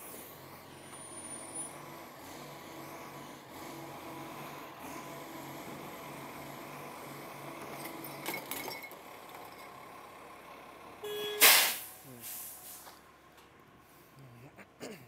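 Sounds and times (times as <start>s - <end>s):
truck engine running: 0.0s - 14.2s
air brake hiss: 11.4s - 13.0s.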